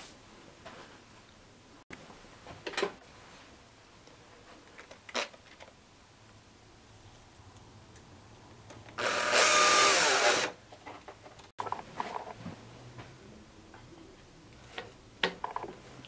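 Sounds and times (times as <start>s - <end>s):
cordless drill whining: 9.0s - 10.6s.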